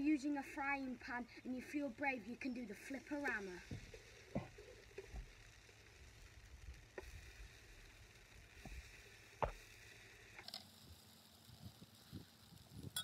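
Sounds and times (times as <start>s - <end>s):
faint sizzle: 0.0s - 13.0s.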